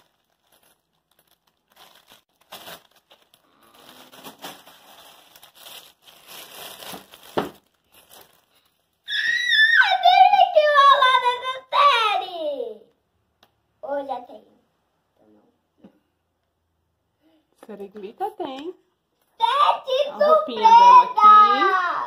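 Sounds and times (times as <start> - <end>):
plastic wrapper crinkling and tearing: 0.0 - 9.1
child speaking: 9.8 - 12.9, 13.8 - 14.6, 19.4 - 22.0.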